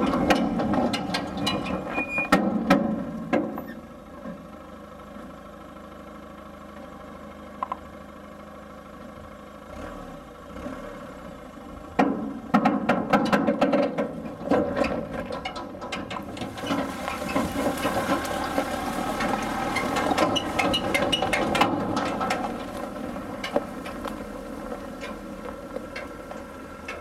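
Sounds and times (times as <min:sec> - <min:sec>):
trailer clattering over rough track: 0:11.9 - 0:27.0.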